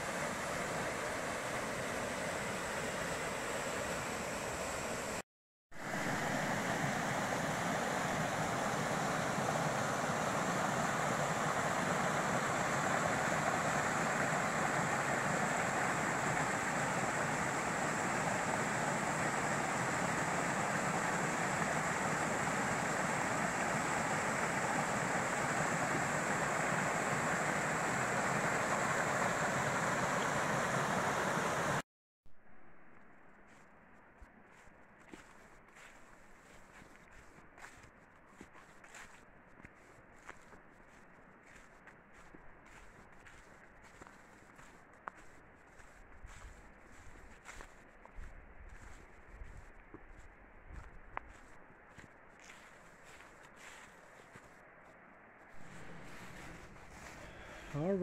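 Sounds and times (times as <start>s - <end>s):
creek over rocky cascades: 0.0s - 5.2s, 5.8s - 31.8s, 55.6s - 58.0s.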